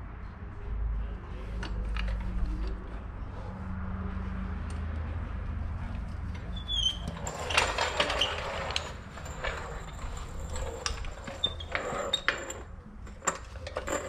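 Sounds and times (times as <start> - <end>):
floor jack pumping clicks and squeaks: 6.3 - 14.0.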